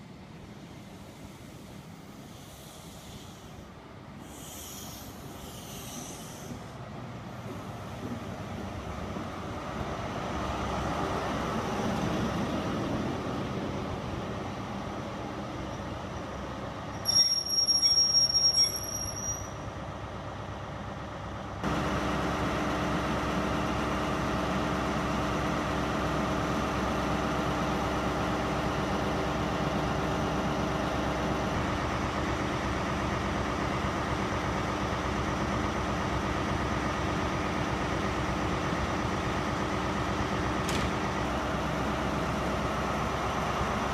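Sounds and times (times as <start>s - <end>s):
diesel train engine pulling away: 0.0s - 43.9s
diesel engine idling: 0.1s - 16.9s, 19.6s - 43.9s
high-pitched whistle tone: 17.0s - 19.6s.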